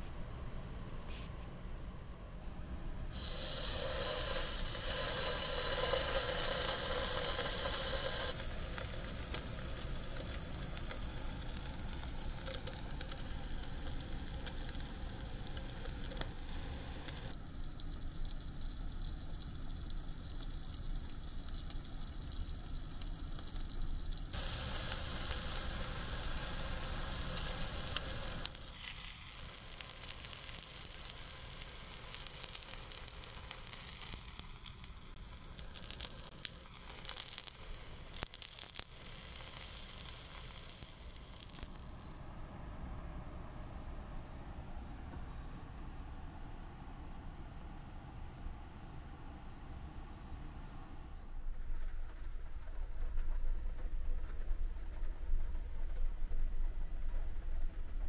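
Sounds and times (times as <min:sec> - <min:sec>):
steady rain: 0:03.1 - 0:42.2
meat sizzling in frying pan: 0:03.2 - 0:17.3, 0:21.3 - 0:42.2.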